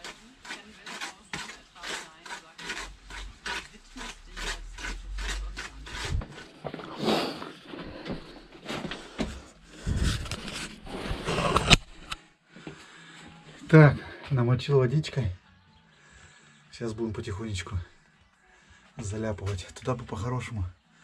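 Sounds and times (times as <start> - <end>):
trowel scraping mortar in bucket: 0.0 - 8.2, 9.8 - 12.2.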